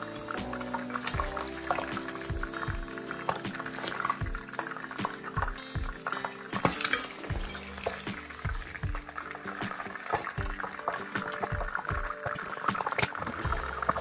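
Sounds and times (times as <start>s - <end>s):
oil sizzling and crackling: 0.0s - 14.0s.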